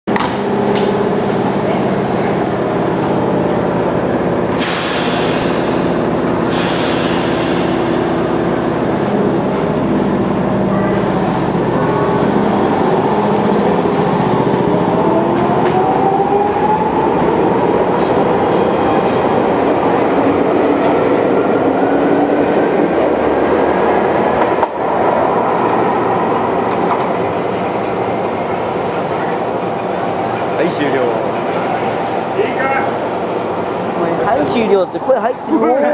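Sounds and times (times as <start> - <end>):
train wheels on rails: 0.1 - 35.6
train air hisses: 4.5 - 14.2.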